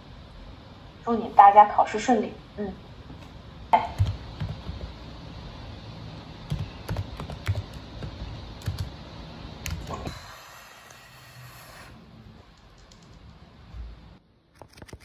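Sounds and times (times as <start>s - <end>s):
computer keyboard typing: 4.0s - 4.9s, 6.5s - 8.9s, 14.6s - 15.0s.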